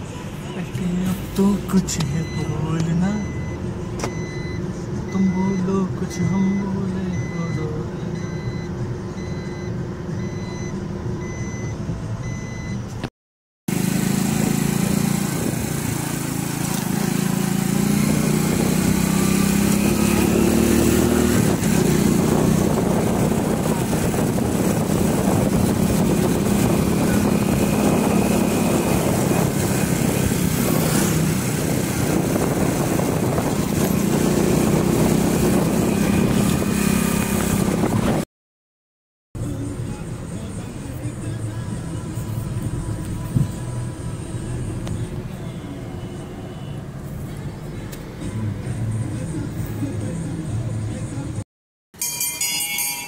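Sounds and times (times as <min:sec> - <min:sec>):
vehicle engine and road noise: 0:00.0 - 0:13.1, 0:13.7 - 0:38.3, 0:39.4 - 0:51.4
repeating electronic beep: 0:02.0 - 0:12.8.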